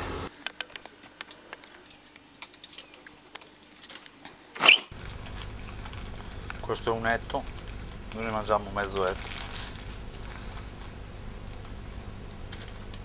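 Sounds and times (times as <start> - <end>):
keys clicking and jingling in lock: 0.3 - 4.1
short loud squeak: 4.6 - 4.9.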